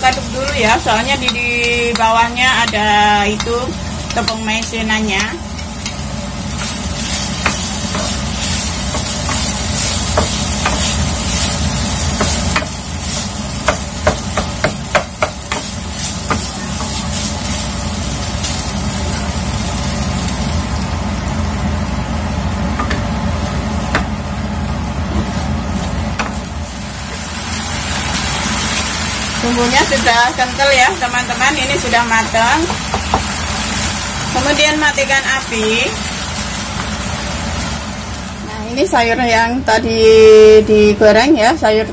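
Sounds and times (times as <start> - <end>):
sauce sizzling: 0.0 - 39.3
spatula knocking against pan: 13.6 - 15.7.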